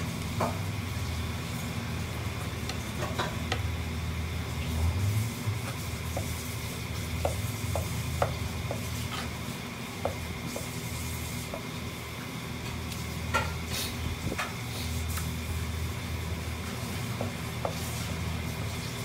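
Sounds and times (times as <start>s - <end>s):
knife tapping on cutting board: 7.2s - 8.9s, 10.0s - 10.7s.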